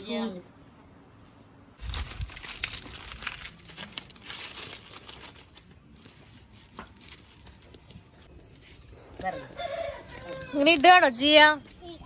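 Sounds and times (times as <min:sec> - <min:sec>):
fire crackling: 0:01.8 - 0:06.0
sticks rustling and snapping: 0:01.8 - 0:08.0.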